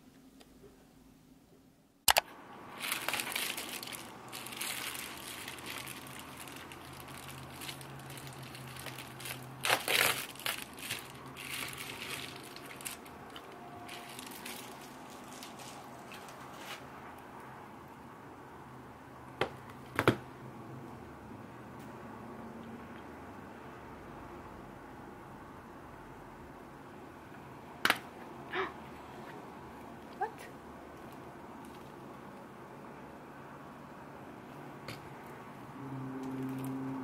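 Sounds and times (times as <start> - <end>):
sharp click: 2.1 - 2.3
plastic packaging crinkling: 2.7 - 16.9.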